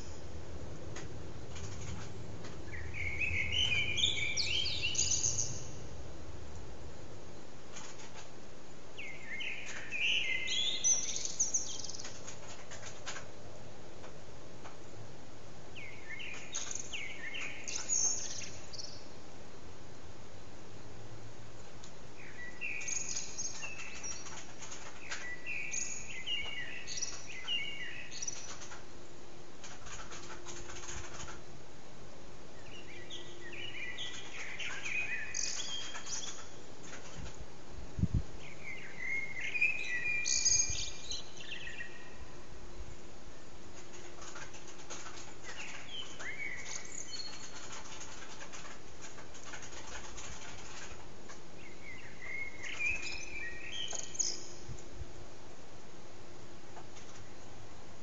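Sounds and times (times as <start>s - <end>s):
blackbird singing: 2.7s - 5.9s, 9.0s - 12.2s, 15.8s - 19.1s, 22.2s - 28.6s, 32.6s - 36.6s, 38.4s - 42.4s, 45.4s - 47.9s, 51.6s - 54.7s.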